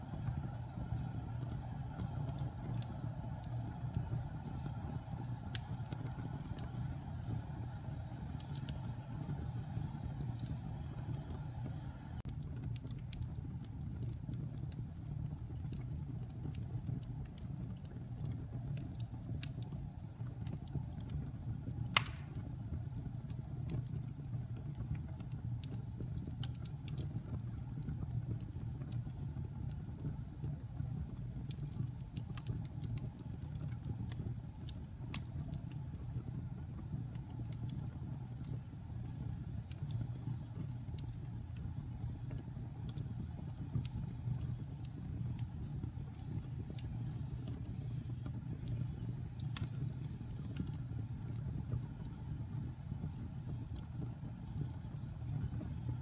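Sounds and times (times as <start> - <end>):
fire crackling: 0.0 - 56.0
sharp pop of fire: 21.8 - 22.8.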